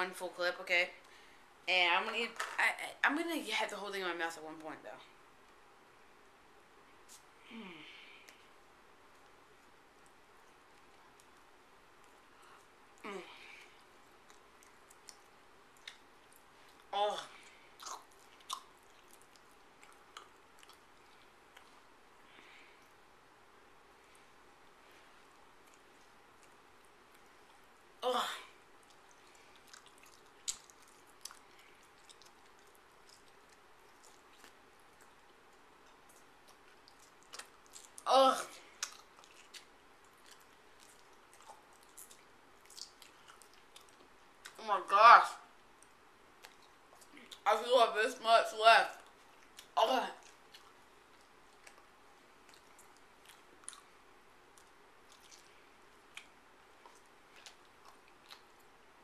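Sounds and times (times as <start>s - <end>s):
mouth chewing gum: 9.1s - 22.2s, 28.7s - 44.6s, 49.0s - 59.0s.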